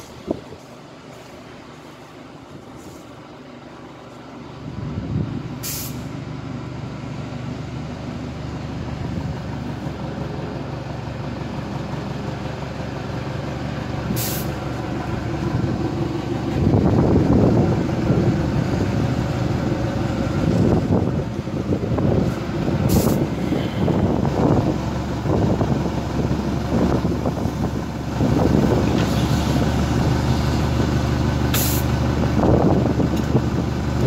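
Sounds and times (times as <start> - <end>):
small locomotive engine hum: 0.0 - 34.0
short sharp hisses: 5.6 - 6.1, 14.2 - 14.6, 22.9 - 23.9, 31.5 - 31.9.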